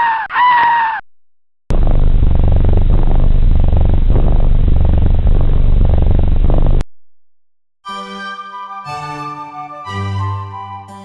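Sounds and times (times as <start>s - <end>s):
cat purring: 1.8s - 6.8s.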